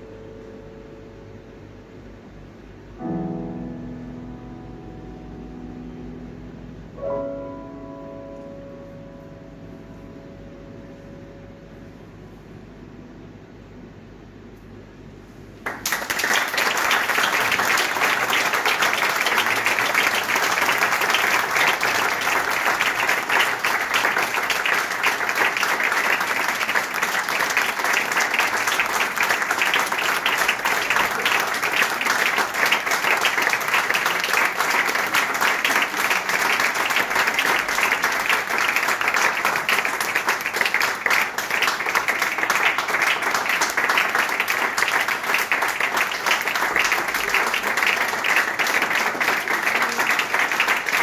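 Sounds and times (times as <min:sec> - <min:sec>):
audience applauding: 0:15.6 - 0:51.0.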